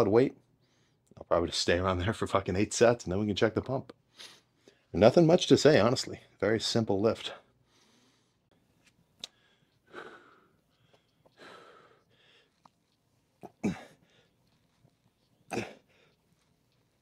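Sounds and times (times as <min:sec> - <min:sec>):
faint clicks: 0:08.5 - 0:13.4
man breathing forcefully: 0:09.3 - 0:12.6.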